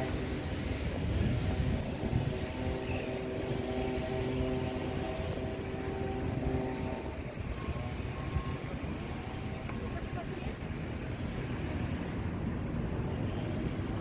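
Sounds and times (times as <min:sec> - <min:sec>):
bagpipes playing over drones: 0:00.0 - 0:10.6
wind on microphone: 0:00.0 - 0:14.0.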